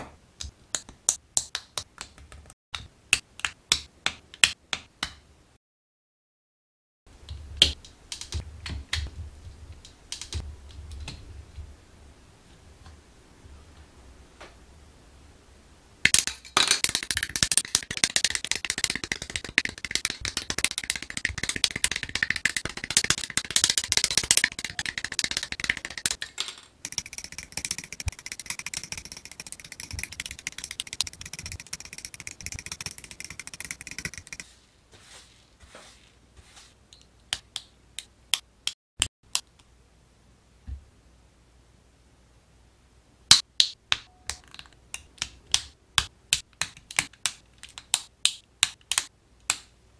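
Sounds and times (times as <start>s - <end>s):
plastic parts rubbing: 16.8s - 26.2s, 26.8s - 34.6s.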